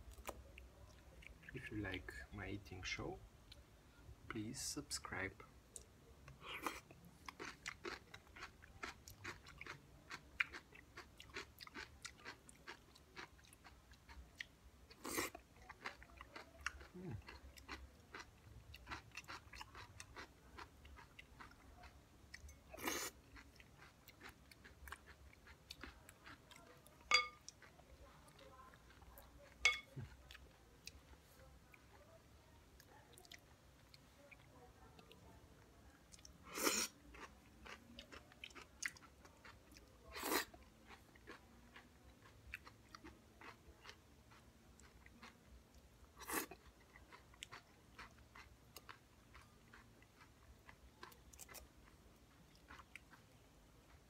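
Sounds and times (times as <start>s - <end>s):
crunchy chewing of salad: 5.8s - 32.1s, 36.0s - 54.0s
spoon striking glass bowl: 27.1s - 27.4s, 29.7s - 29.9s.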